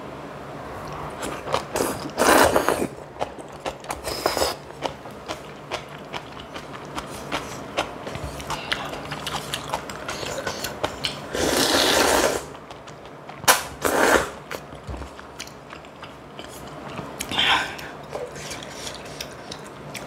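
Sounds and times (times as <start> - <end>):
slurping noodles: 1.3 - 3.0, 4.0 - 4.6, 9.4 - 12.6, 13.8 - 14.4
wet chewing clicks and smacks: 4.8 - 11.2, 12.6 - 13.6, 14.5 - 20.0.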